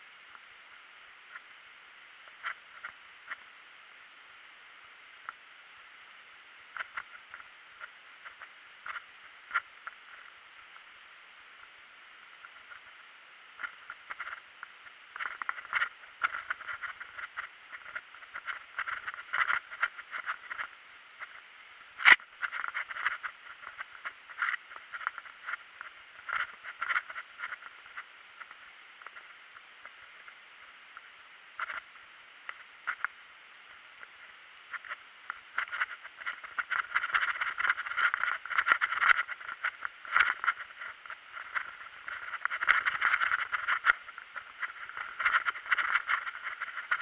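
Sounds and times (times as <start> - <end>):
mountain bike rattling over gravel: 35.6 - 47.0.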